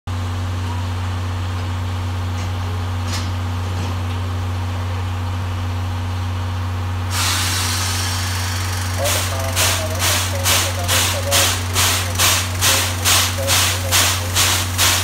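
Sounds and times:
steam hissing: 7.1 - 15.0
steam locomotive humming: 7.1 - 15.0.

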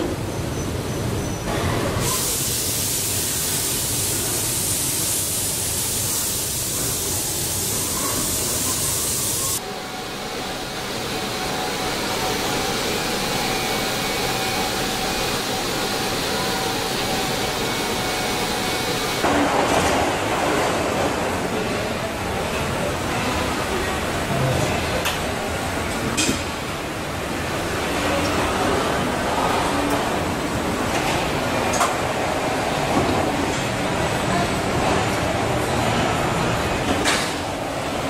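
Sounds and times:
hiss of spraying air: 2.0 - 9.6.

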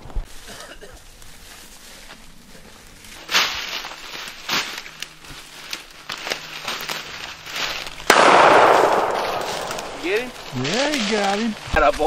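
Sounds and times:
sharp crackles: 0.0 - 12.0
shotgun shot: 8.1 - 10.5.

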